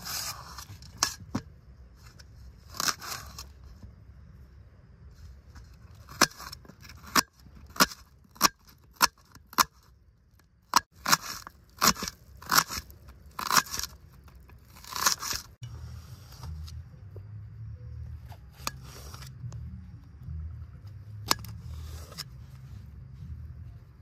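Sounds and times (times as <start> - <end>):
knife scraping board: 21.3 - 22.4.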